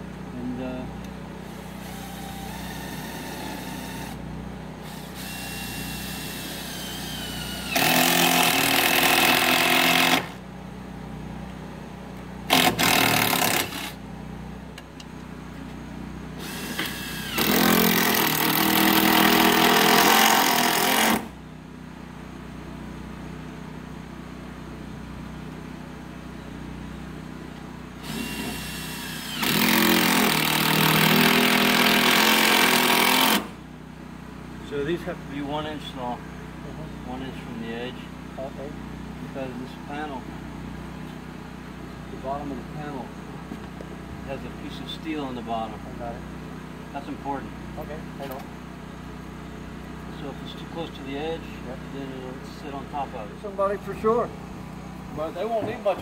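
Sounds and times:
steady low hum: 0.0s - 18.2s
power driver driving screws: 4.9s - 10.4s, 12.5s - 14.0s, 16.4s - 21.3s, 28.0s - 33.5s.

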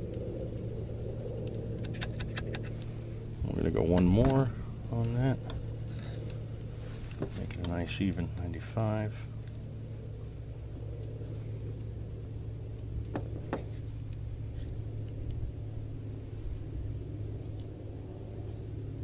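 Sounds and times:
vehicle engine idling: 0.0s - 19.0s.

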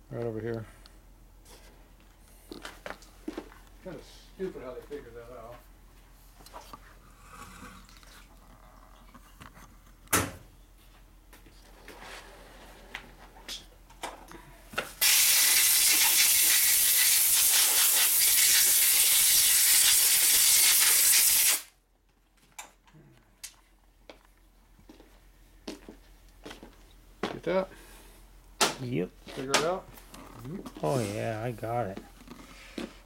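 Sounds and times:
pressurized hiss: 15.0s - 21.7s.

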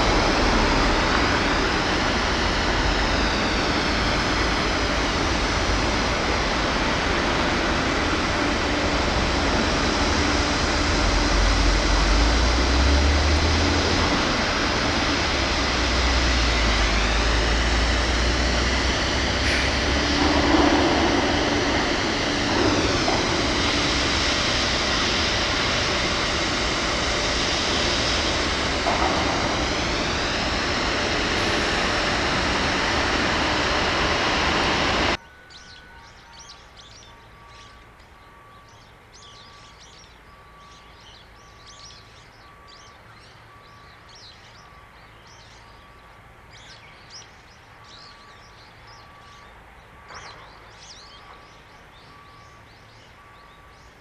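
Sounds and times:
faint bird chirps: 35.2s - 54.0s.

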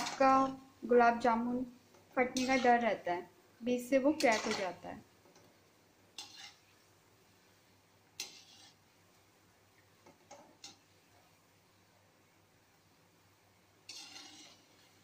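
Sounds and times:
metal ladle clinking on pan: 4.2s - 4.8s, 13.9s - 14.7s.

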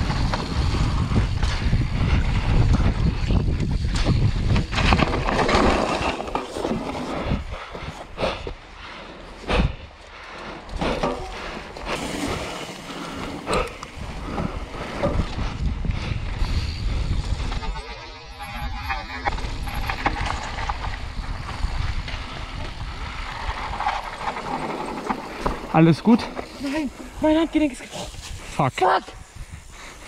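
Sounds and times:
bike tyres rolling on dirt: 0.0s - 18.2s, 18.9s - 30.0s
bike knocking over bumps: 3.9s - 7.1s.

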